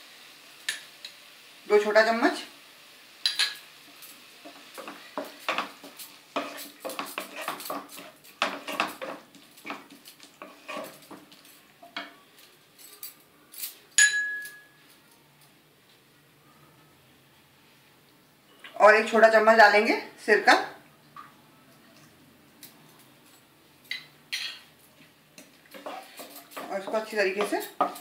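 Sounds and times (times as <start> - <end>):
spatula stirring and scraping: 3.4 - 12.4, 23.9 - 28.0
sharp metallic clink: 12.8 - 14.8.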